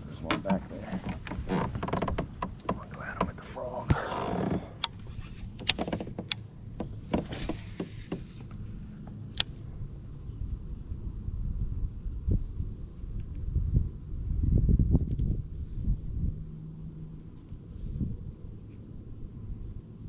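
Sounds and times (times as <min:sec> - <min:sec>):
reel clicks: 0:00.2 - 0:08.5.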